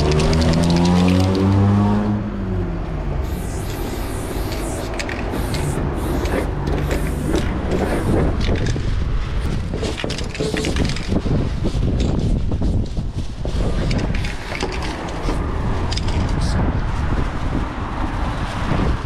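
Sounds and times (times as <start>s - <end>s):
spray paint can hissing: 0.0s - 1.6s, 3.2s - 8.8s, 9.4s - 15.4s
low street rumble: 0.0s - 19.0s.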